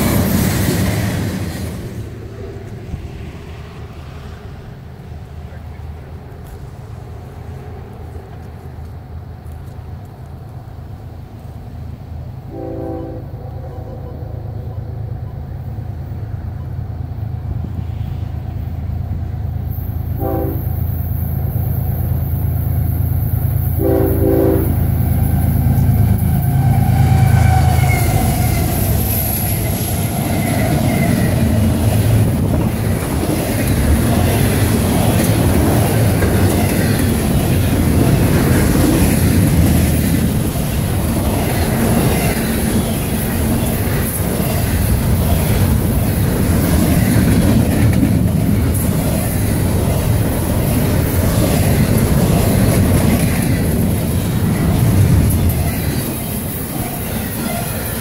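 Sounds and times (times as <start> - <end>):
wheel-on-rail noise: 0.0 - 12.4, 13.4 - 58.0
diesel locomotives rumbling: 0.0 - 58.0
train horn blasts: 12.4 - 14.7, 20.1 - 21.0, 23.7 - 25.0.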